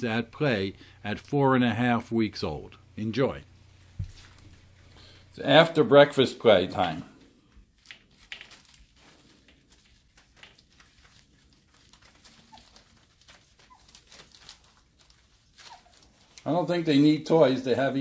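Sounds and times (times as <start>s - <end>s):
puppies scuffling: 7.9s - 16.7s
high puppy squeaks: 12.3s - 14.5s, 15.5s - 16.1s.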